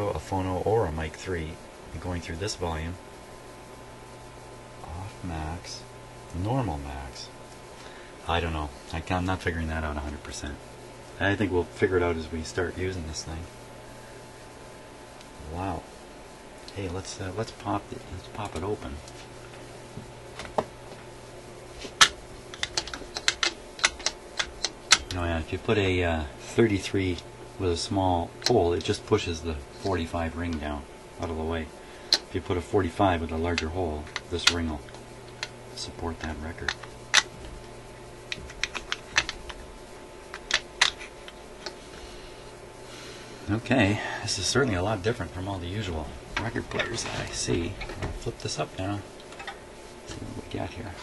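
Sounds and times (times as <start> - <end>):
turntable clicks and taps: 22.0 - 25.2.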